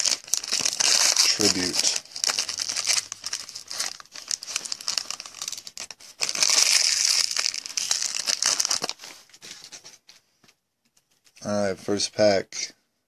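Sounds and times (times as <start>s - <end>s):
foil wrapper crinkling: 0.0s - 9.9s.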